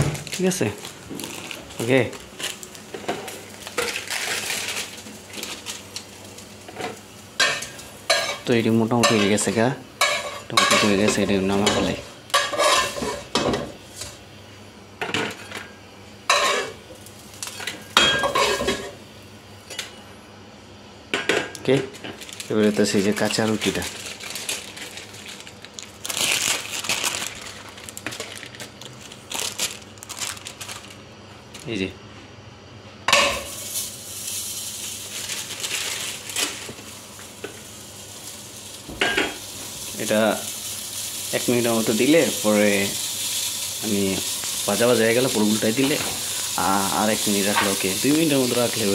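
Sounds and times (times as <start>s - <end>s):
roti sizzling in a hot pan: 0.0s - 20.0s, 20.7s - 31.8s, 33.0s - 48.9s
metal spatula scraping a wok: 12.4s - 13.3s.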